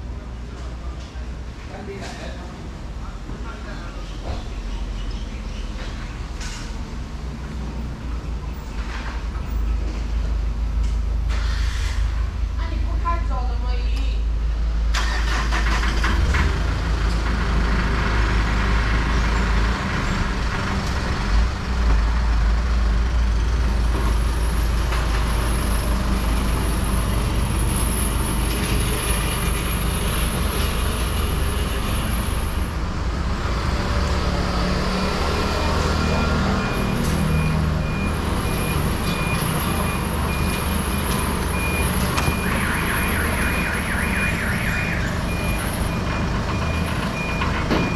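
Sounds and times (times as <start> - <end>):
truck engines rumbling: 0.0 - 47.9
truck reversing alarm beeps: 34.7 - 47.9.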